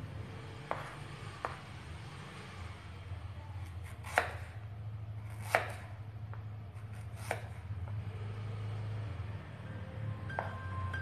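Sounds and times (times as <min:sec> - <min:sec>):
knife striking cutting board: 0:00.7 - 0:01.6.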